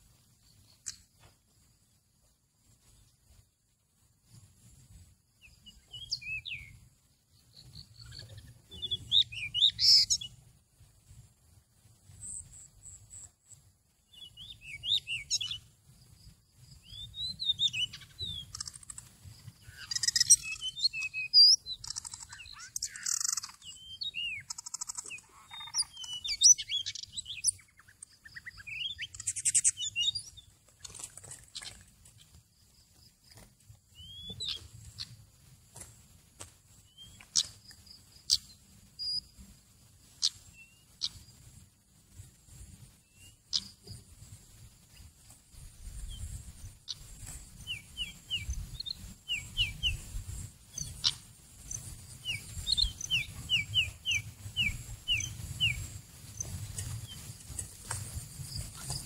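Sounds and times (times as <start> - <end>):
bird singing whistles and chirps: 5.4 - 6.8, 7.4 - 10.4, 14.1 - 15.7, 16.7 - 30.5, 33.9 - 35.2, 36.8 - 39.4, 40.2 - 41.3, 43.0 - 44.0, 46.0 - 57.4.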